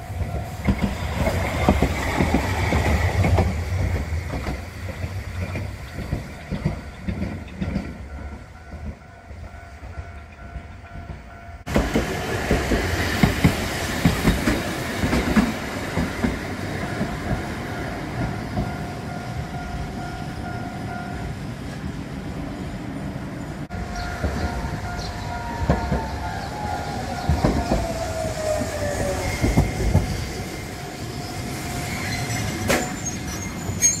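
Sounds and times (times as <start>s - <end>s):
tram wheels clacking over rail joints: 0.0s - 21.0s, 23.6s - 34.0s
level-crossing bell ringing: 16.9s - 21.3s
tram whine falling in pitch: 23.7s - 34.0s.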